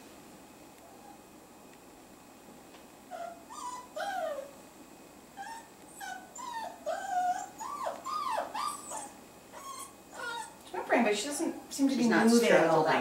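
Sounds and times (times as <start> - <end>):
puppy whining: 3.1 - 4.6, 5.4 - 10.6.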